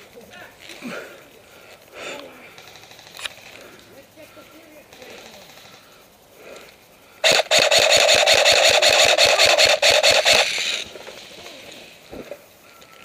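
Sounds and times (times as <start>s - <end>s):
airsoft gun full-auto burst: 2.6s - 3.4s, 7.2s - 11.4s.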